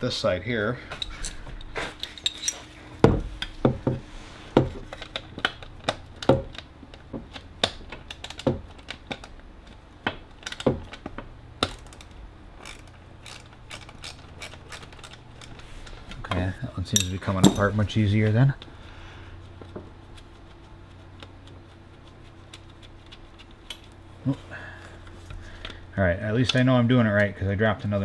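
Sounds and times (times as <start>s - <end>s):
ratchet wrench clicking: 11.7s - 15.5s.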